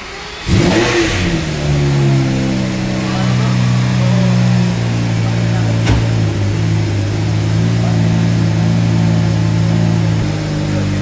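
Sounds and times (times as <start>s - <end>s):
car engine idling: 0.0s - 11.0s
sharp knock: 5.8s - 6.4s.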